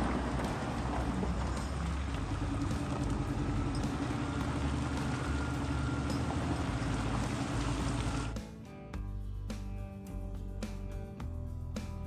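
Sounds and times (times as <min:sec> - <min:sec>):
wheel loader diesel engine droning: 0:00.0 - 0:08.4.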